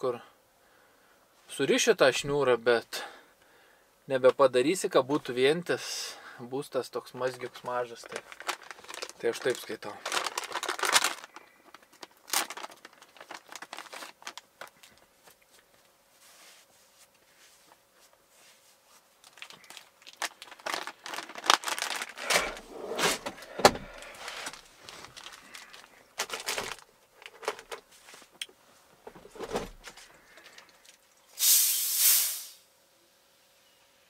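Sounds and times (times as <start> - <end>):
small objects clattering: 7.2 - 15.0, 19.2 - 27.8
soda bottle gas hissing: 31.4 - 32.7.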